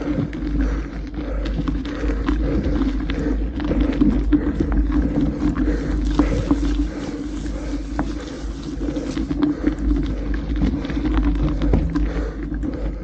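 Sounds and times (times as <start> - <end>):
tyres crunching on gravel: 4.0 - 10.1.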